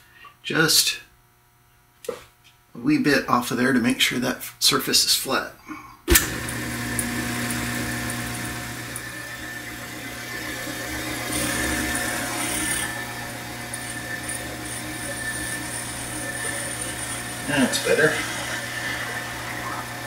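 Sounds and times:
lathe motor humming: 6.1s - 20.0s.

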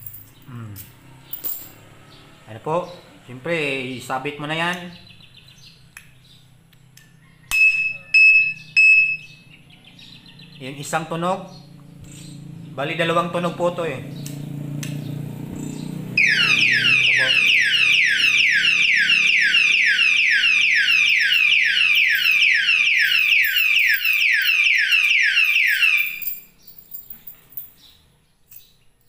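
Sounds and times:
alarm siren whooping: 16.0s - 26.4s.

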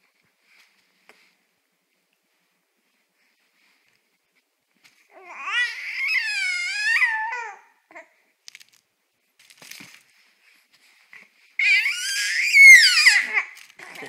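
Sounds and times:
baby squealing: 5.2s - 7.7s, 11.6s - 14.0s.

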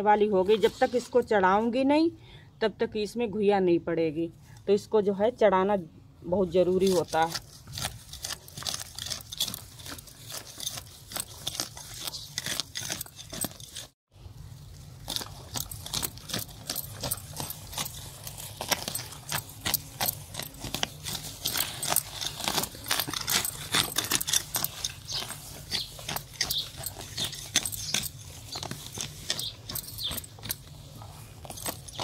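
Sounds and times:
weeds pulled from dry soil: 6.4s - 32.0s.

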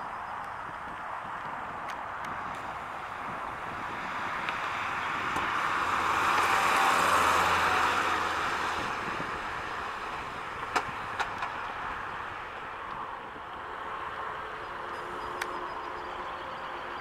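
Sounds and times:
car driving past: 4.8s - 9.4s.

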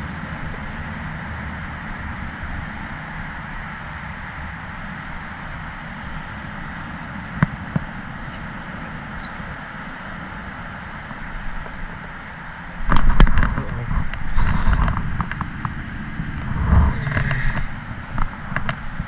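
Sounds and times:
wind rumbling on microphone: 0.0s - 19.0s.

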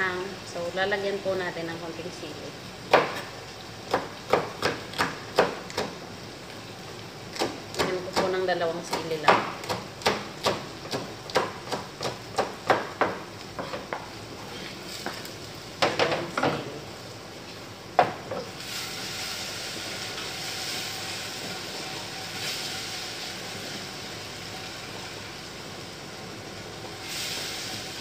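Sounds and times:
food sizzling in pot: 0.0s - 28.0s
knife chopping on cutting board: 2.9s - 3.3s, 3.9s - 5.9s, 8.9s - 14.1s.

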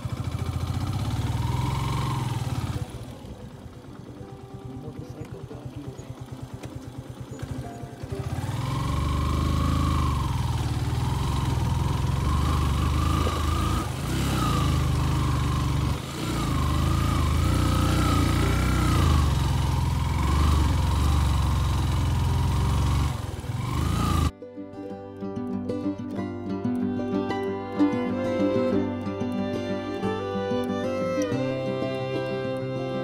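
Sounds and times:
motorcycle engine revving: 0.0s - 24.3s.

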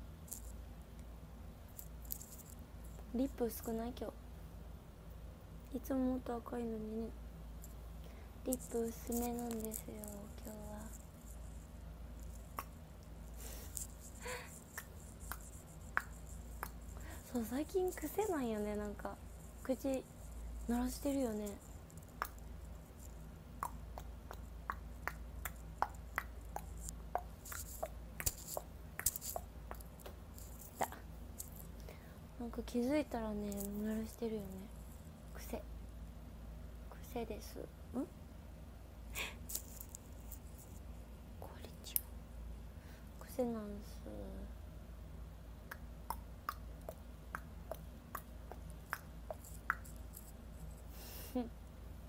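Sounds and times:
tongue clicks: 23.6s - 31.6s, 45.7s - 50.0s.

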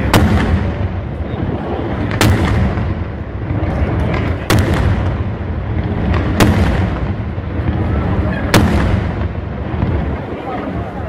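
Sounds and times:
fireworks bursting with loud bangs: 0.0s - 11.0s
steady low rumble: 0.0s - 11.0s
faint firework pops: 2.0s - 3.1s, 3.8s - 7.8s.

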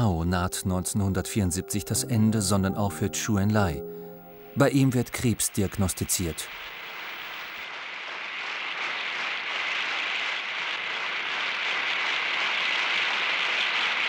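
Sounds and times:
audience applauding: 5.0s - 14.0s.

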